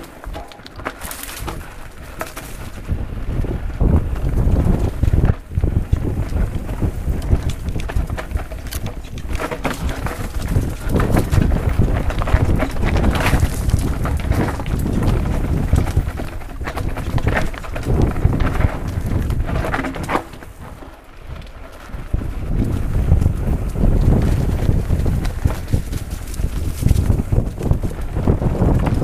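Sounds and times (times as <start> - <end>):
bike knocking and rattling: 0.0 - 29.0
wind rumbling on microphone: 0.0 - 29.0.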